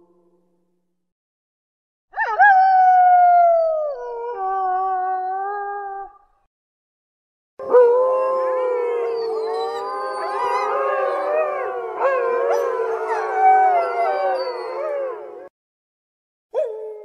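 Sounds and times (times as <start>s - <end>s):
wolves howling in chorus: 7.6s - 15.5s.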